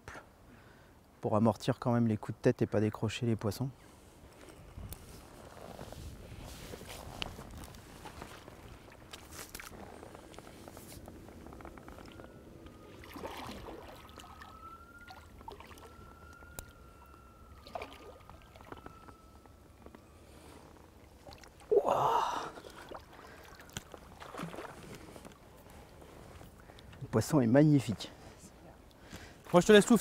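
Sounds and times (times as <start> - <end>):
fish thrashing and water splashing: 11.8 - 19.7, 20.8 - 21.7, 22.4 - 26.8.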